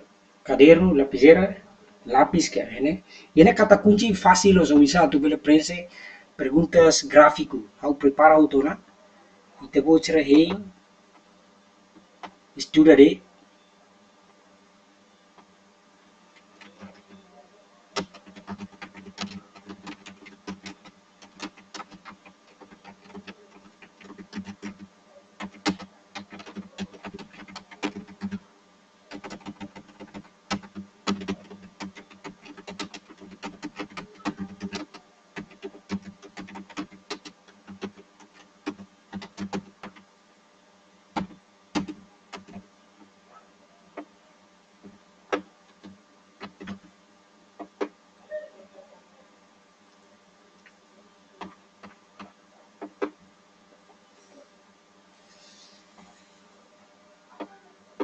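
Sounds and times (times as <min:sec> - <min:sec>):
low electrical hum: 0:00.0 - 0:58.0
computer mouse clicking: 0:16.4 - 0:17.2, 0:18.0 - 0:28.4, 0:29.1 - 0:40.0, 0:41.2 - 0:42.6, 0:44.8 - 0:46.9, 0:51.4 - 0:53.2.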